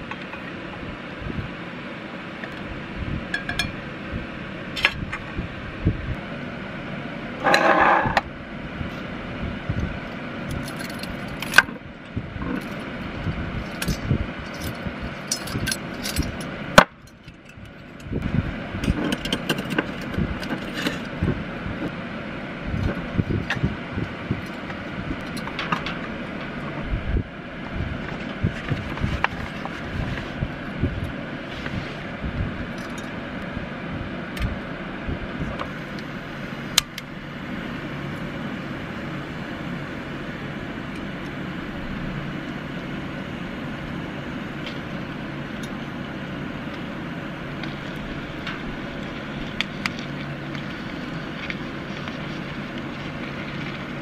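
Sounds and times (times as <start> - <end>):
steady background hum: 0.0 - 54.0.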